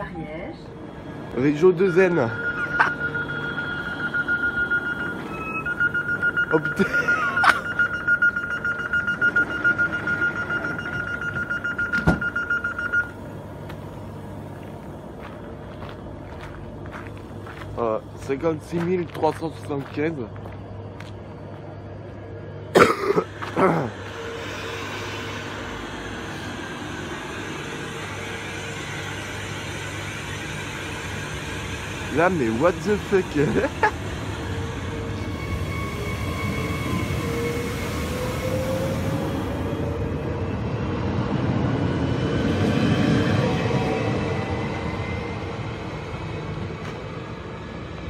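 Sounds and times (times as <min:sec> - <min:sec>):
thin steady whine: 0:00.0 - 0:48.0
train low hum: 0:00.0 - 0:48.0
rapid high beeping: 0:01.6 - 0:13.1.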